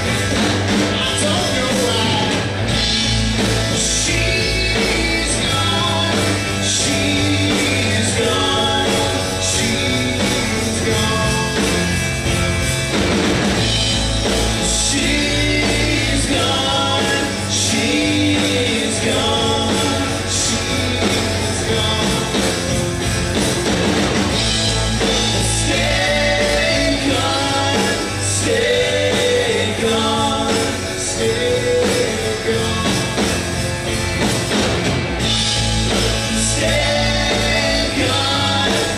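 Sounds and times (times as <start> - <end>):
bass guitar: 0.0 - 38.9
drum kit: 0.0 - 38.9
electric guitars: 0.0 - 38.9
person singing: 3.7 - 11.9, 14.6 - 22.8, 25.0 - 33.4, 35.9 - 38.9.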